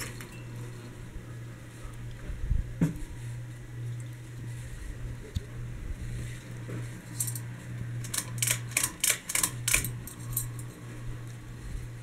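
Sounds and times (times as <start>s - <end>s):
ceiling fan motor hum: 0.0s - 12.0s
sharp clicks and rattles: 7.1s - 10.7s.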